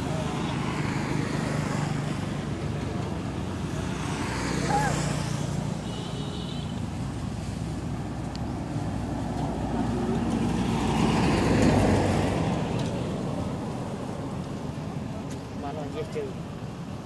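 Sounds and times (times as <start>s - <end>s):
vehicle passing by: 0.0s - 5.8s, 6.9s - 16.5s
road traffic rumble: 0.0s - 17.0s.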